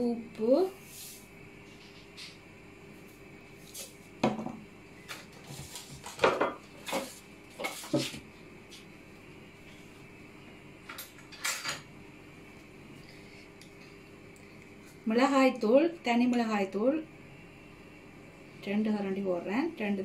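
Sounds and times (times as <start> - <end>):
kitchen utensils clinking: 11.2 - 11.9.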